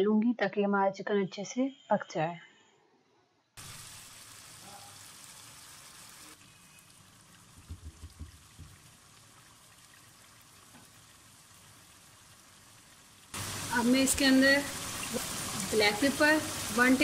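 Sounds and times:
chicken sizzling in oil: 3.6 - 17.0
soft low knocks: 7.6 - 8.8.

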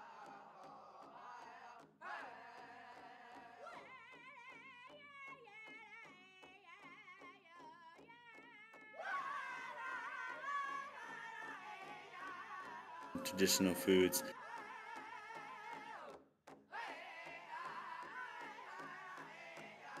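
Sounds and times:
background music with steady beat: 10.3 - 15.4.

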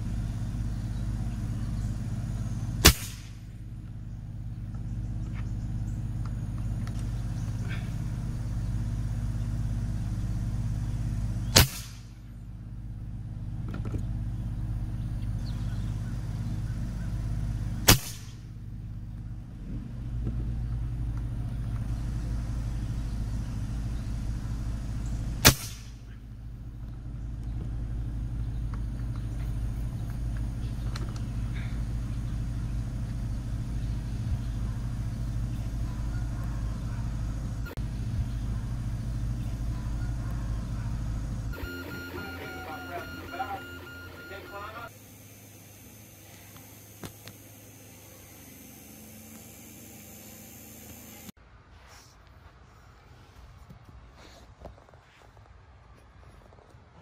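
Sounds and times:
steady low hum: 0.0 - 51.7
air rifle shots: 2.8 - 3.5, 11.5 - 12.2, 17.8 - 18.5, 25.4 - 26.2.

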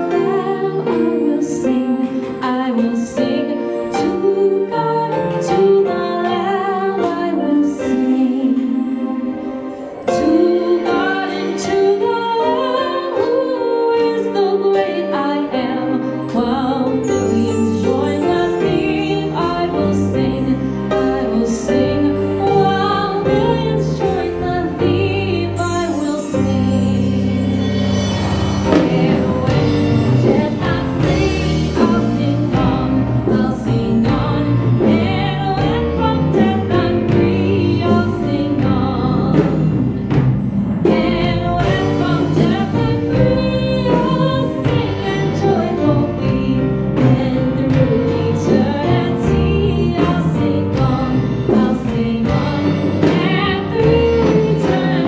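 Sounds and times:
woman singing into microphone: 0.0 - 28.1, 28.7 - 40.0, 40.8 - 55.0
keyboard: 0.0 - 55.0
drum kit with cymbals: 15.6 - 55.0.

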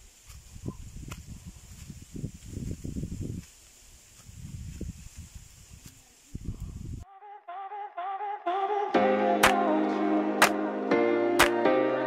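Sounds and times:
full chords: 8.0 - 12.0.

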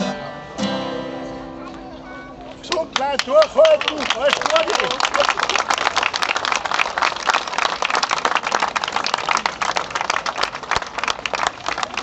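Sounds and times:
crowd clapping: 2.5 - 12.0.

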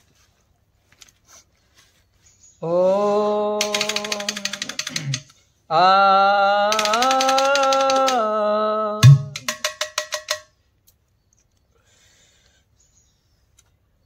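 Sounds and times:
man singing a held note: 2.6 - 9.6
rapid tapping on a steel pot: 9.0 - 10.5.

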